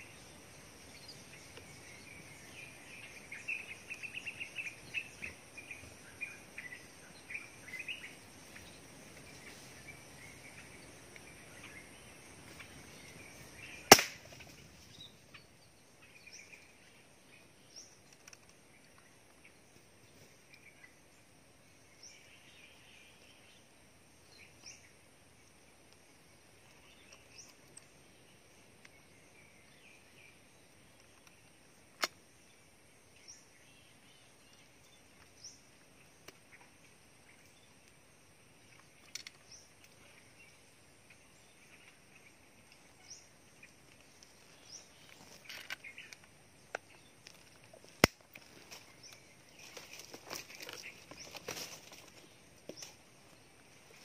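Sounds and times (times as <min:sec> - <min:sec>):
faint bird chirps: 0:00.0 - 0:54.0
leaves and clothing rustling: 0:00.0 - 0:54.0
air rifle shots: 0:13.9 - 0:14.3.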